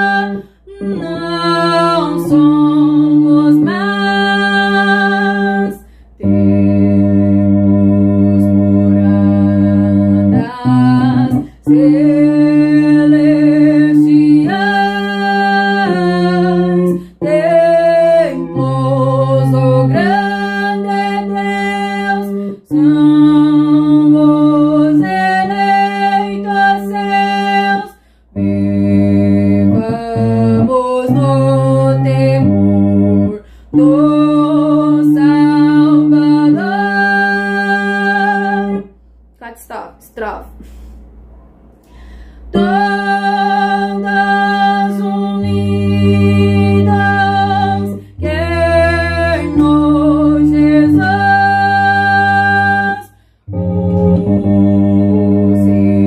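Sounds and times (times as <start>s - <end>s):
woman singing hymn: 0.0s - 38.9s, 42.5s - 56.0s
woman breathing: 5.8s - 6.2s, 27.9s - 28.4s, 33.4s - 33.8s, 40.6s - 42.6s, 53.1s - 53.5s.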